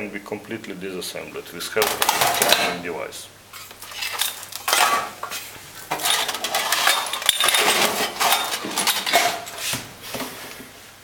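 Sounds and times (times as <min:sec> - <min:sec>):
metal parts clinking in a tray: 0:01.8 - 0:02.7, 0:03.9 - 0:05.2, 0:05.9 - 0:09.6
tray sliding into metal drawer: 0:05.9 - 0:10.5.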